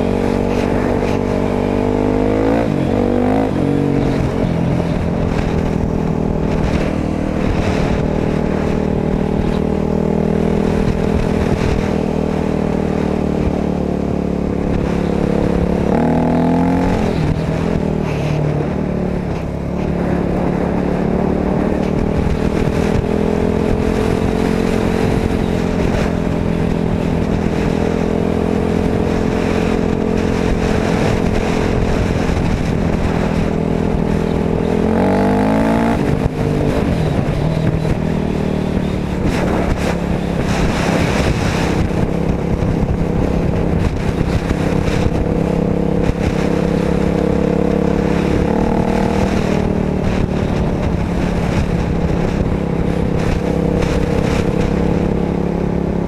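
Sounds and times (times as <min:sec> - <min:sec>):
motorcycle engine: 0:00.0 - 0:56.0.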